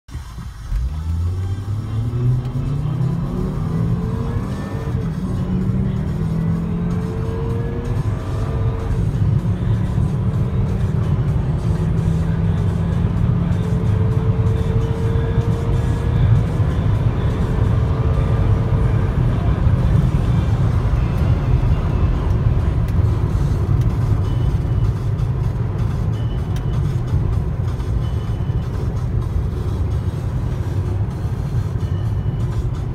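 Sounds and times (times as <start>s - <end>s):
car engine accelerating hard: 0.1s - 32.9s
road and wind noise: 0.1s - 32.9s.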